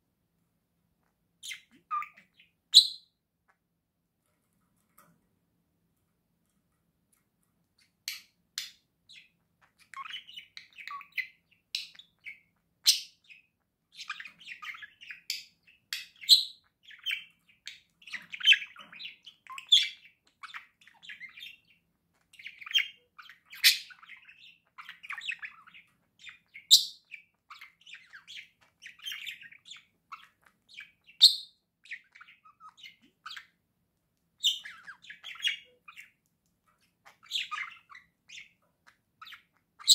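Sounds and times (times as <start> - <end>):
budgerigars chattering: 1.4 - 3.0, 8.6 - 33.6, 34.4 - 36.2, 36.8 - 39.9.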